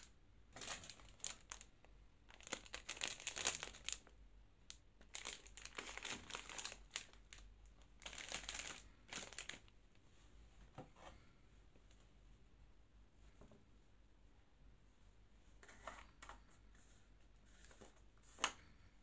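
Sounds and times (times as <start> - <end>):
plastic wrappers crinkling: 0.0 - 1.7, 2.3 - 4.1, 5.0 - 9.7.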